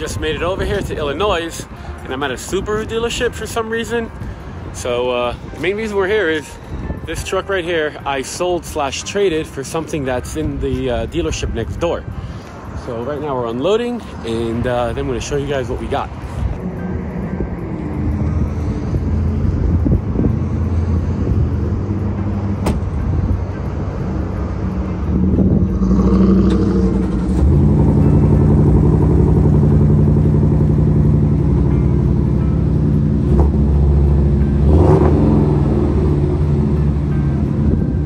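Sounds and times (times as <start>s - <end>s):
low engine hum: 11.1s - 38.0s
truck engine starting and idling: 12.9s - 38.0s.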